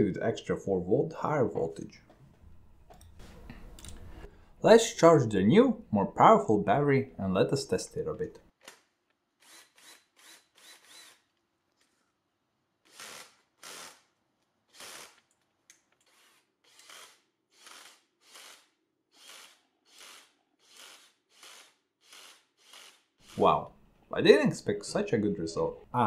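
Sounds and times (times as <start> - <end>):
cordless drill whirring: 9.4 - 11.3, 12.9 - 14.1, 14.7 - 15.3, 16.0 - 23.4.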